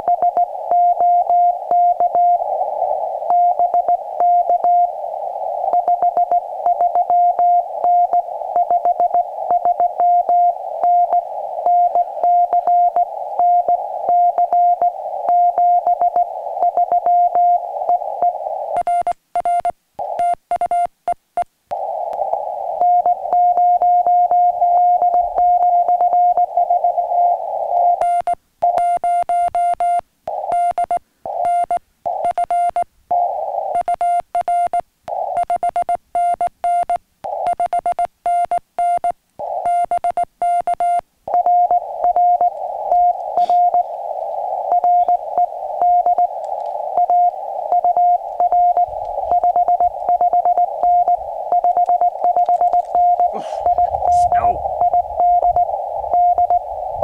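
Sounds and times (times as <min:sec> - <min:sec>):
radio band noise hiss: 0:00.0 - 0:18.8, 0:21.7 - 0:28.0, 0:30.3 - 0:30.5, 0:39.4 - 0:39.7, 0:41.3 - 0:57.0
morse code tone: 0:44.7 - 0:46.3, 0:47.0 - 0:56.7.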